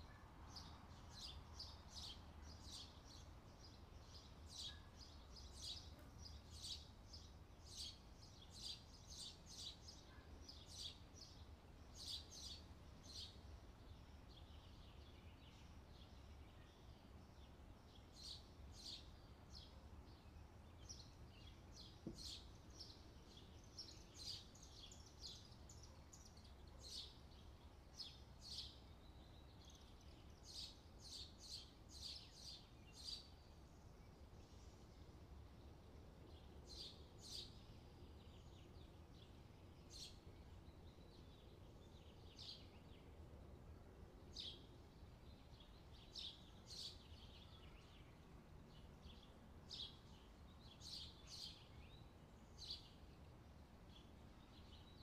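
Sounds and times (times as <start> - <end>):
faint bird chirps: 0.0 - 35.4.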